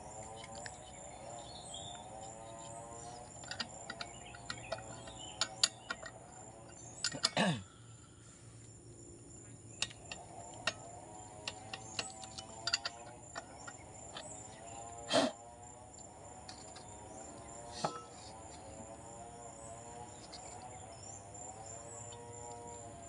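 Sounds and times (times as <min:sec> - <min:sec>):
light metallic clicks and knocks: 0:02.6 - 0:07.4, 0:09.8 - 0:14.4.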